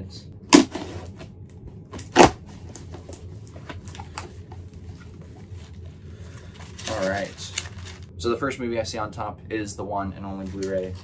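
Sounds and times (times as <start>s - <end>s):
cardboard tearing: 2.0s - 2.4s
cardboard crackling and rustling: 6.5s - 8.1s.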